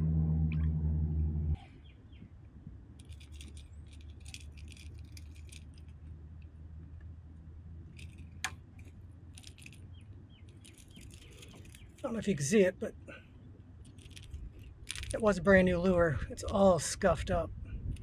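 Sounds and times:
faint low rumble: 0.0 - 18.0
fishing lure hooks clicking: 3.0 - 5.9, 10.5 - 12.1.

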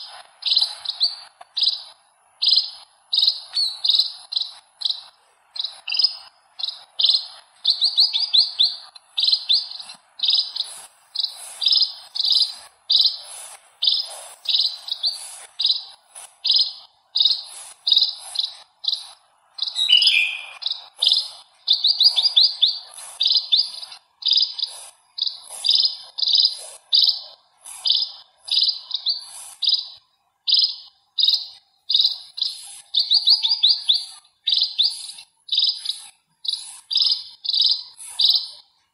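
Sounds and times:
sparrows chirping: 0.0 - 38.9.

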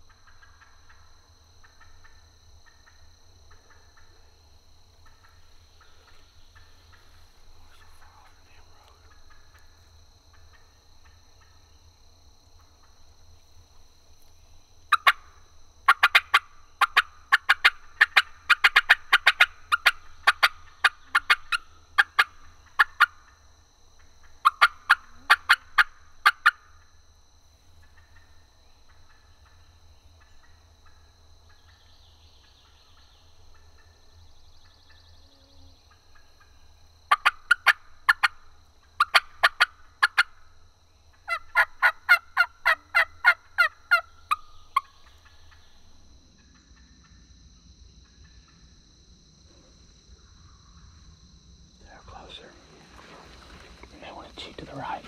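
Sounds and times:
turkeys gobbling: 14.9 - 23.3, 24.0 - 26.7, 36.1 - 40.4, 41.2 - 45.7.

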